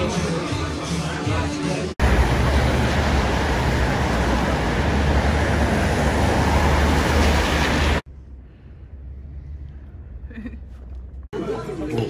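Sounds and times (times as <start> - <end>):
cars driving past: 2.0 - 8.0.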